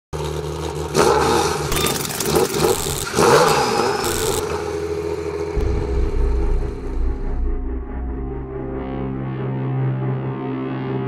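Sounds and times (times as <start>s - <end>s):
steady low drone: 5.1s - 11.0s.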